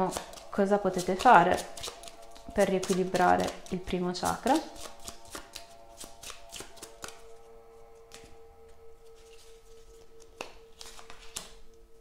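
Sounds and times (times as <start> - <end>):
cards flicking and clicking: 0.0 - 3.8, 4.5 - 7.3, 10.2 - 11.6
soft background music: 0.0 - 12.0.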